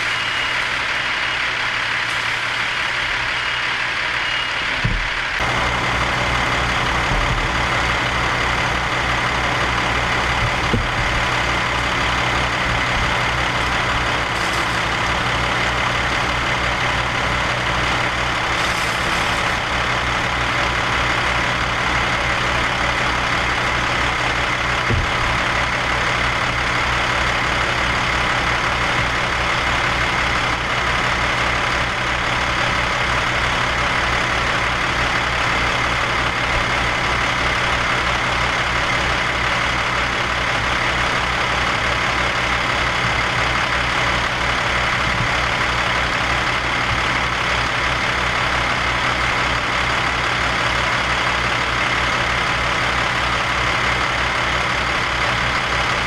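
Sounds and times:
thin steady whine: 0.0s - 36.6s
heavy engine running: 0.0s - 56.0s.

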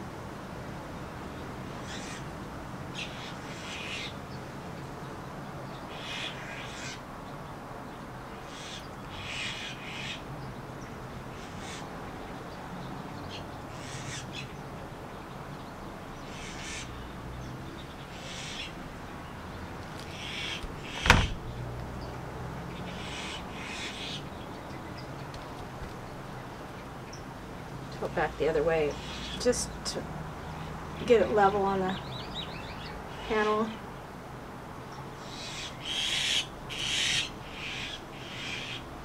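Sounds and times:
birds calling: 1.4s - 2.3s, 2.9s - 34.1s, 34.8s - 39.0s
sharp knock: 21.0s - 21.4s.

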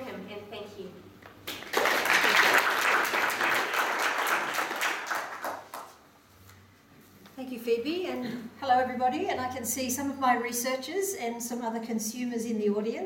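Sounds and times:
audience applause: 1.5s - 6.0s.

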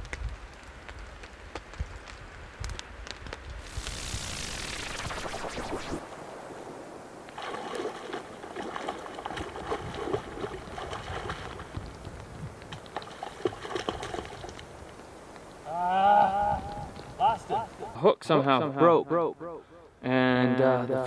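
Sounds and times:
water trickling and gurgling: 7.2s - 12.1s.

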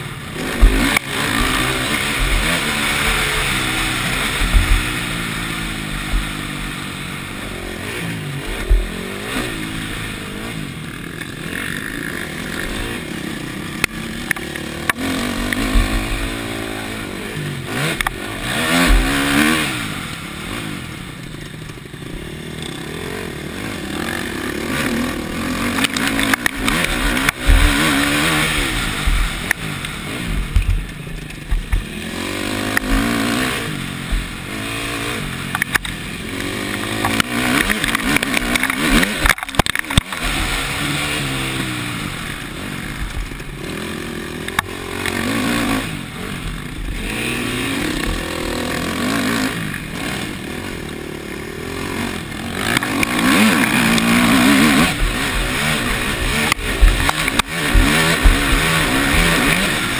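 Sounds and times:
motocross bike engine revving: 0.0s - 59.9s
thumps of bumps and landings: 0.5s - 5.0s, 18.8s - 19.4s, 30.3s - 31.9s, 52.8s - 59.9s.

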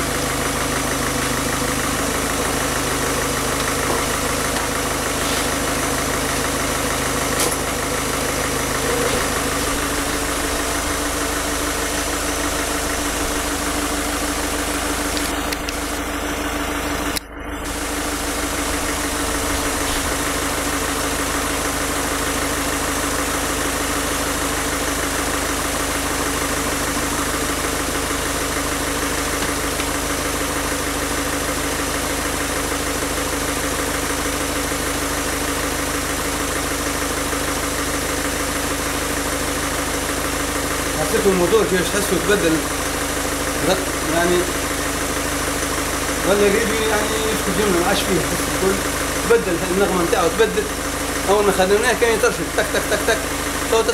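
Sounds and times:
diesel engine idling: 0.0s - 53.9s.

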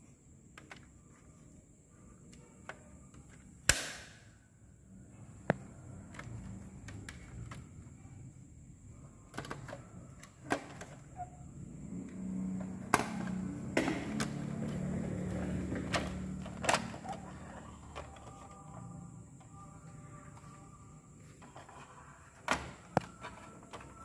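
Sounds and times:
plastic toys clicking and knocking: 6.0s - 7.8s, 9.3s - 11.0s, 15.7s - 19.6s.

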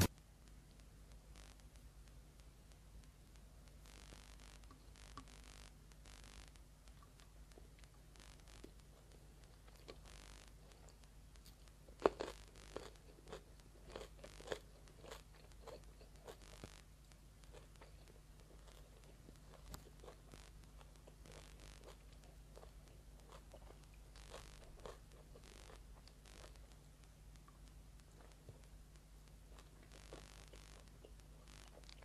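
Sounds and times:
person chewing food: 6.9s - 16.8s, 17.4s - 26.8s, 27.5s - 28.7s, 29.4s - 32.0s.

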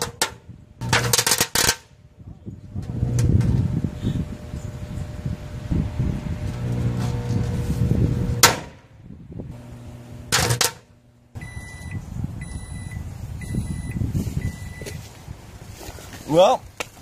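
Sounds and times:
microwave oven running: 2.8s - 8.5s, 9.3s - 13.9s
microwave beeps: 11.4s - 15.0s.

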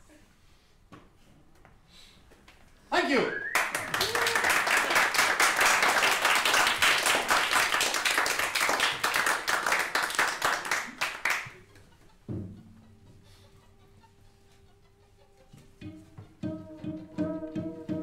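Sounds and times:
small audience applauding: 3.3s - 11.7s.

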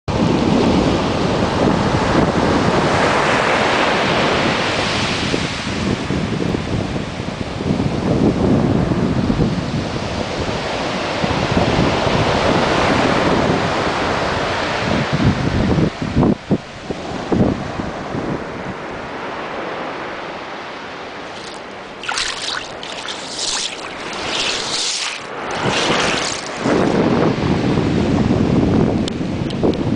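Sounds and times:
wind rumbling on microphone: 0.1s - 19.0s, 21.2s - 29.9s
surf breaking on beach: 21.2s - 27.6s.

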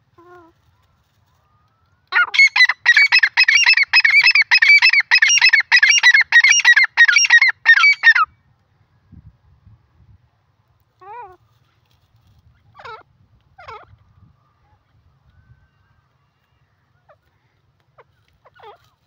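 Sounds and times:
bird calling harsh repeated notes: 2.1s - 8.3s.

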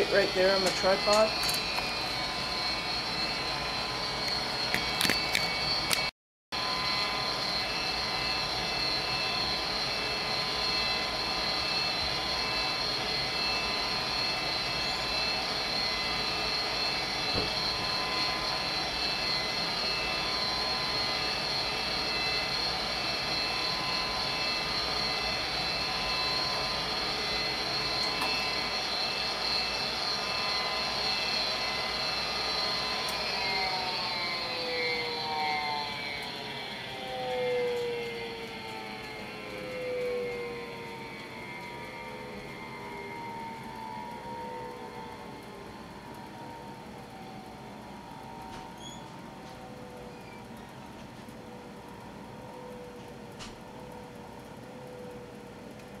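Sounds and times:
motor spinning down: 0.0s - 50.7s
furnace motor and blower whining: 0.0s - 56.0s.

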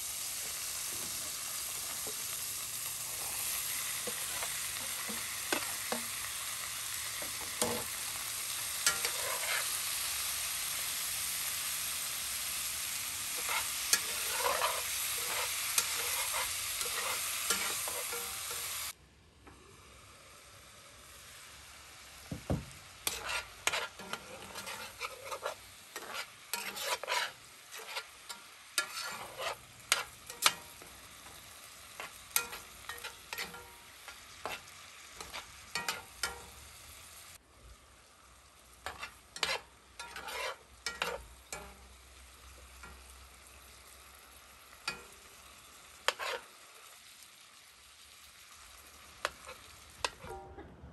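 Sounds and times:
food sizzling in a skillet: 0.0s - 19.0s, 19.6s - 50.5s
metal spoon scraping a pan: 3.0s - 10.6s, 11.5s - 18.8s, 22.9s - 36.6s, 38.8s - 41.9s, 44.8s - 45.1s, 46.0s - 46.9s, 49.1s - 50.4s.

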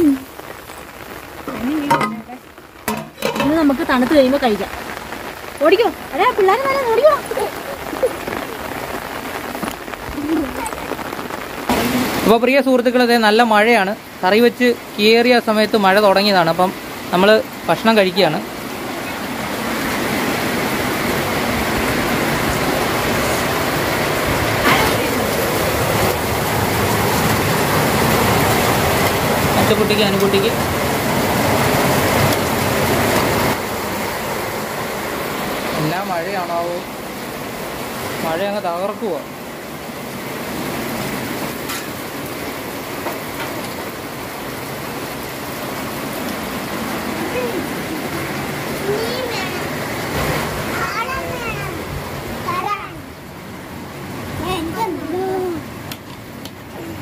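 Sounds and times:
heavy rain falling: 0.0s - 57.0s.

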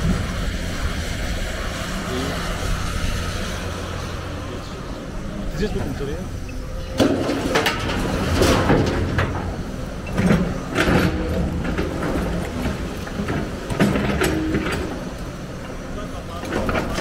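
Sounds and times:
excavator engine and hydraulics: 0.0s - 17.0s
rubble knocking and clattering: 7.0s - 15.0s, 16.4s - 17.0s.

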